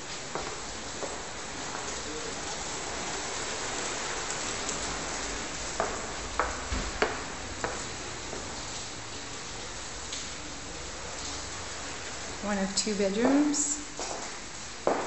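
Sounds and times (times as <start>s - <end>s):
rain hissing: 0.0s - 15.0s
footsteps on hard floor: 5.8s - 8.5s, 13.2s - 15.0s.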